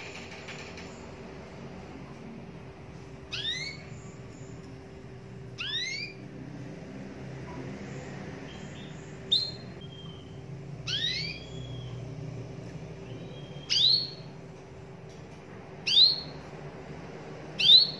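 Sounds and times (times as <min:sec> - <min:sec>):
canary whistling: 0:03.3 - 0:04.2, 0:05.5 - 0:06.3, 0:08.5 - 0:12.2, 0:13.0 - 0:14.4, 0:15.8 - 0:16.5, 0:17.6 - 0:17.9.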